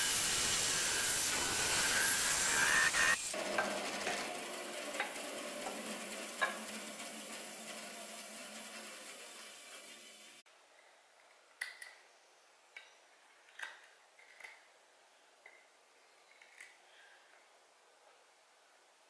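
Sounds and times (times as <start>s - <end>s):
bandsaw cutting wood: 0.0s - 9.6s.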